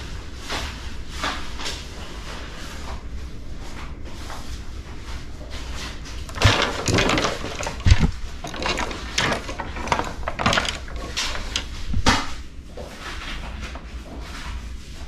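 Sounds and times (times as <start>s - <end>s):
fishing rods rubbing and clattering: 5.1s - 15.0s
dull thumps: 6.2s - 12.4s.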